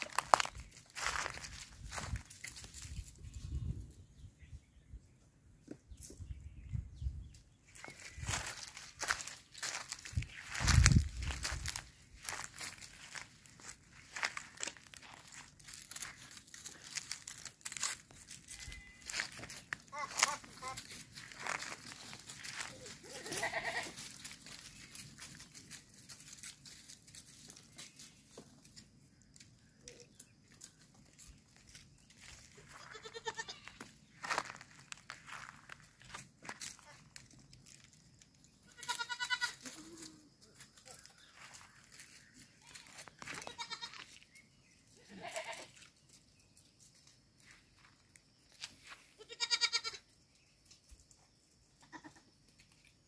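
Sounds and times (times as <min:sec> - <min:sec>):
hooves crackling dry leaves: 0:00.0 - 0:03.7, 0:07.6 - 0:53.0
goats bleating: 0:18.5 - 0:21.0, 0:22.5 - 0:24.0, 0:32.7 - 0:33.8, 0:38.7 - 0:40.2, 0:42.6 - 0:44.0, 0:45.0 - 0:45.8, 0:49.2 - 0:50.0, 0:51.8 - 0:52.2.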